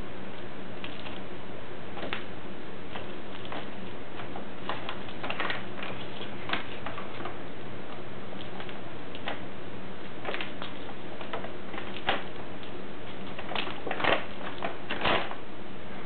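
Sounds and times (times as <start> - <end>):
paper bag crinkling: 2.9 - 7.4, 13.0 - 15.4.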